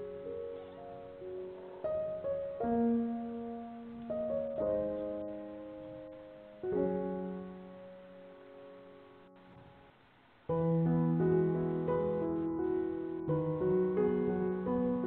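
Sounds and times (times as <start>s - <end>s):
slow piano music: 0.0s - 9.9s, 10.5s - 15.0s.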